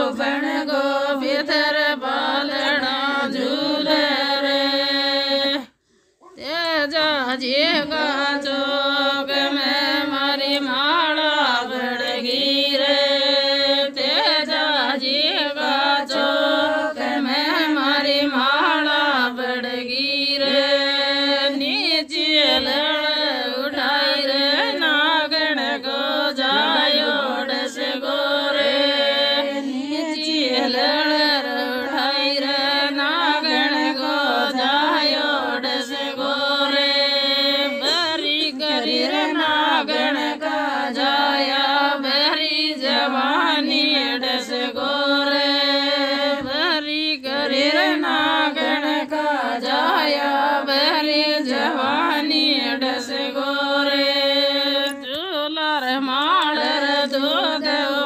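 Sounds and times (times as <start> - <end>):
devotional singing over drone: 7.1 - 58.0.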